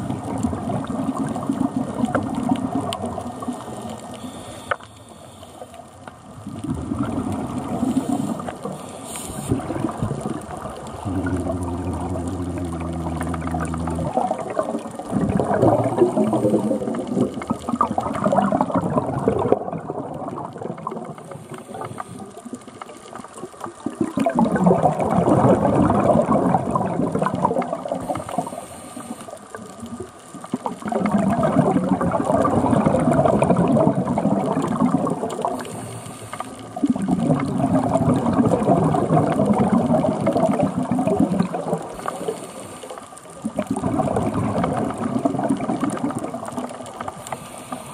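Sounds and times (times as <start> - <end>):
exhaled bubbles burbling underwater: 0.0 - 4.3, 6.0 - 47.9
faint hiss of inhalation: 4.1 - 5.8, 7.8 - 9.7, 21.3 - 22.4, 28.1 - 29.5, 35.6 - 36.8, 41.9 - 43.2, 47.2 - 47.9.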